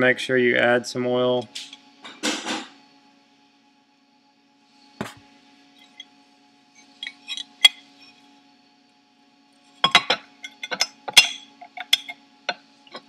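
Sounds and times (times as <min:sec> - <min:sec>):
metal parts clinking: 0:09.8 - 0:12.2.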